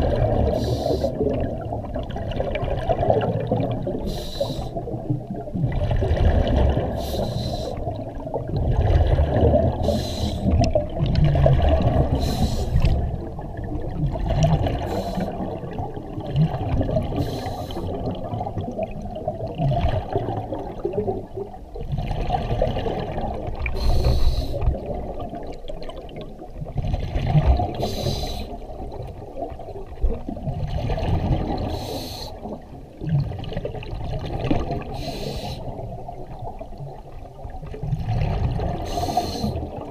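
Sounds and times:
exhaled bubbles underwater: 0:00.0 - 0:39.9
scuba regulator breathing: 0:00.4 - 0:01.2, 0:04.0 - 0:04.8, 0:06.9 - 0:07.9, 0:09.8 - 0:10.6, 0:12.0 - 0:13.0, 0:14.8 - 0:15.4, 0:17.1 - 0:18.0, 0:23.7 - 0:24.7, 0:27.8 - 0:28.6, 0:31.6 - 0:32.5, 0:34.9 - 0:35.8, 0:38.8 - 0:39.8.

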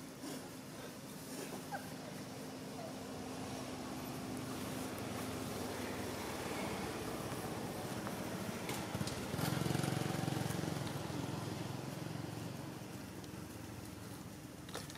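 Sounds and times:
vehicle engine running: 0:03.2 - 0:14.5.

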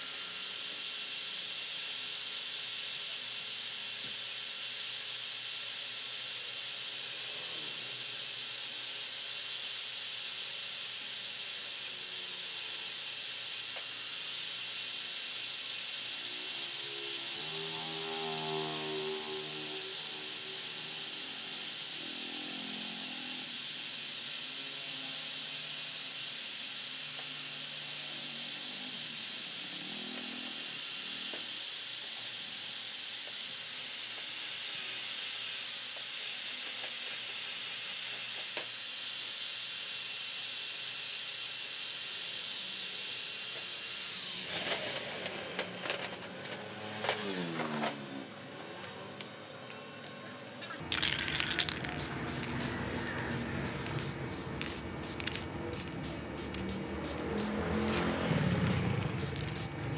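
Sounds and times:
angle grinder scouring metal: 0:16.0 - 0:23.6, 0:50.8 - 0:59.9
grinder winding down whine: 0:16.0 - 0:23.9, 0:27.2 - 0:31.4, 0:43.9 - 0:59.9.

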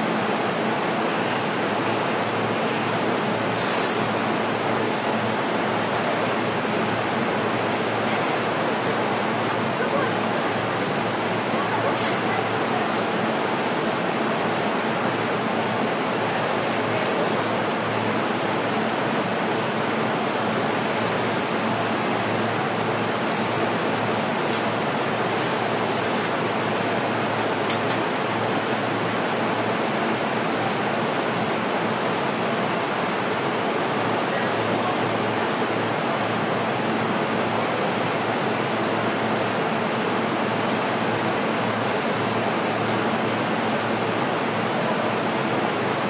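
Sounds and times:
train interior rushing noise: 0:19.8 - 0:31.2.

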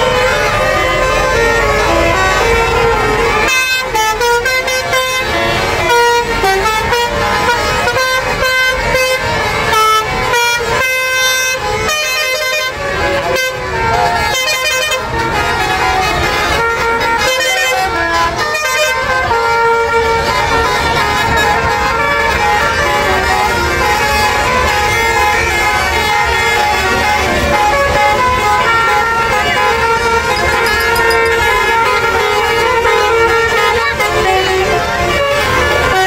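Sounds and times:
musical air horns playing tunes: 0:00.0 - 0:36.0
crowd voices: 0:20.2 - 0:36.0.

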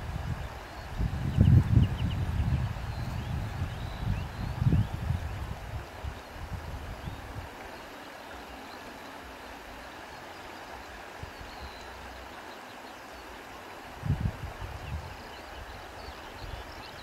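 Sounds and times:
wind gust buffeting microphone: 0:00.0 - 0:07.6, 0:13.9 - 0:17.0
wind blowing through grass: 0:00.0 - 0:17.0.

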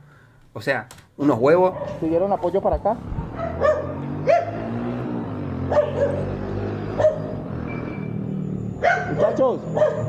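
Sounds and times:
motorcycle engines idling: 0:01.5 - 0:10.0
dog barking: 0:01.7 - 0:02.5, 0:03.3 - 0:04.8, 0:05.6 - 0:07.5, 0:08.8 - 0:10.0.

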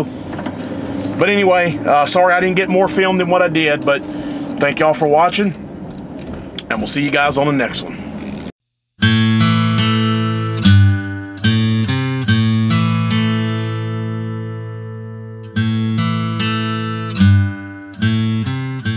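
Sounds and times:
guitar picked notes and chords: 0:09.0 - 0:18.9.

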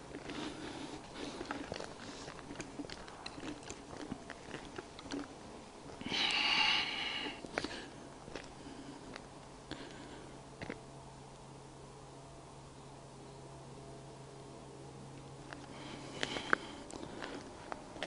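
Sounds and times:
footsteps crunching on gravel: 0:00.0 - 0:09.3, 0:15.4 - 0:18.0.

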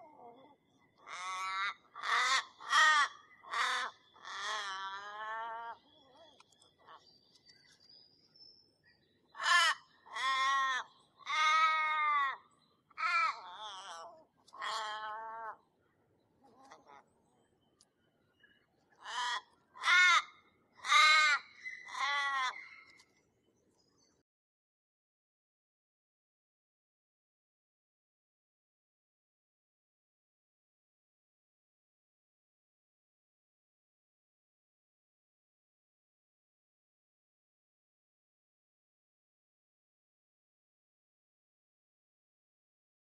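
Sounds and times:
crows cawing: 0:01.0 - 0:05.7, 0:09.4 - 0:12.4, 0:13.0 - 0:15.6, 0:19.0 - 0:22.9.

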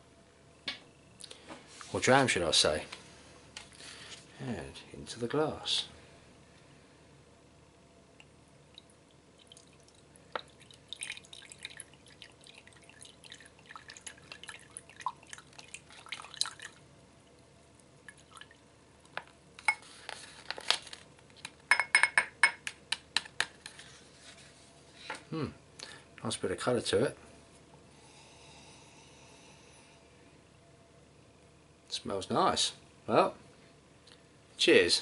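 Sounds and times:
liquid dripping into a glass: 0:08.2 - 0:17.4.

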